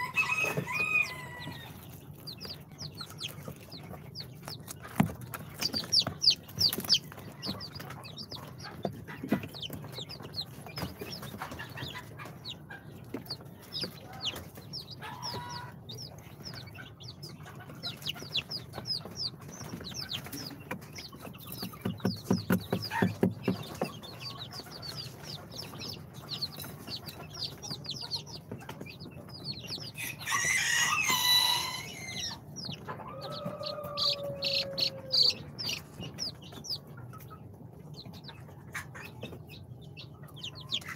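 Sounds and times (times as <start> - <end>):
chicks peeping: 0.0 - 40.9
quick run of knocks: 19.7 - 24.4.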